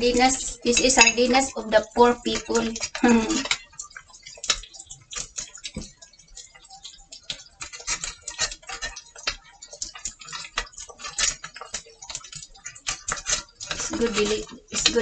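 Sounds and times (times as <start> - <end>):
chopsticks clicking on metal tin: 6.6 - 15.0.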